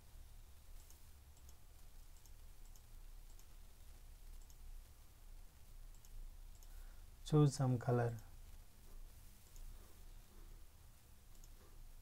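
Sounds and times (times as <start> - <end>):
low steady hum: 0.0 - 12.0
computer mouse clicks: 0.8 - 4.7, 5.9 - 6.8, 11.3 - 11.8.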